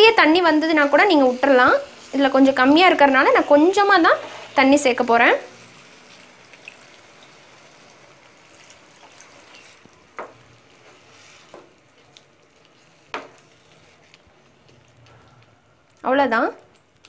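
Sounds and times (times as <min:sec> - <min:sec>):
gravy sizzling in a pan: 0:00.0 - 0:14.9
spatula scraping a pan: 0:02.8 - 0:04.7, 0:10.8 - 0:11.7.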